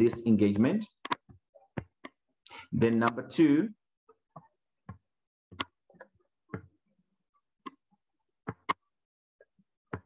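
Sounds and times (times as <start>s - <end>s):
clicks and taps: 4.4s - 6.8s.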